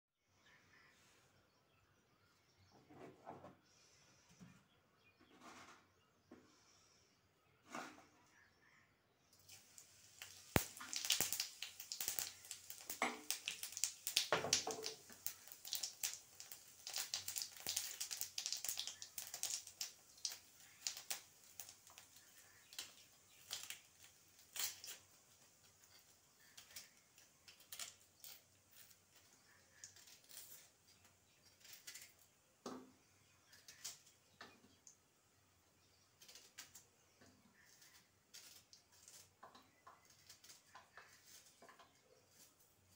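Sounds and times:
seeds crackling in hot oil: 9.3 - 42.9.

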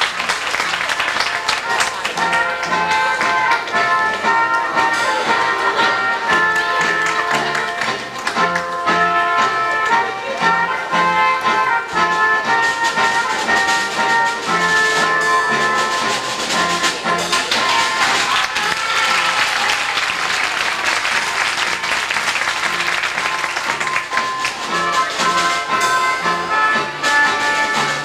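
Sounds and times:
audience applause: 0.0 - 8.8, 17.2 - 25.2
music playing: 0.0 - 28.0.

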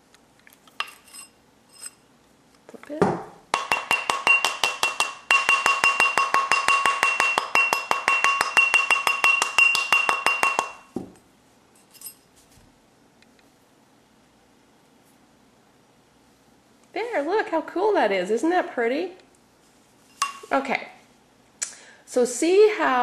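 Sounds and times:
mallet tapping on metal mandrel: 3.5 - 10.8.

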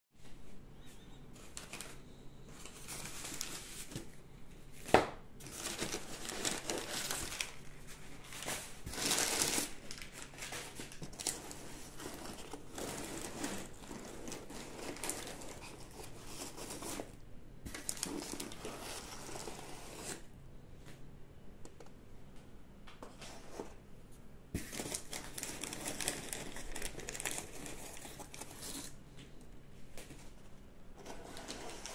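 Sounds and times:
newspaper rustling and crinkling: 1.3 - 4.2, 4.8 - 17.1, 17.7 - 20.2, 24.6 - 29.0, 31.0 - 31.9.

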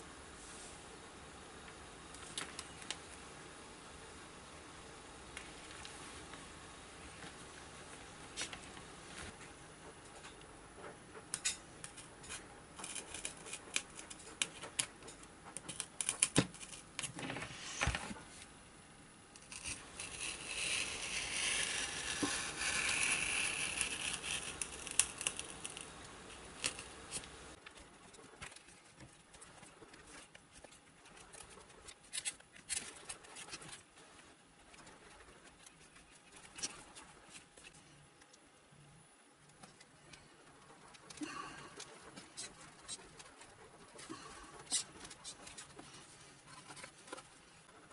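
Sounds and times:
metal tube scraping through foam: 19.5 - 25.8.

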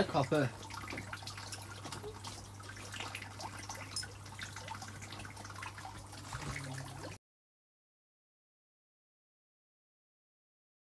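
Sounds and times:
aquarium water trickling and bubbling: 0.0 - 7.2.

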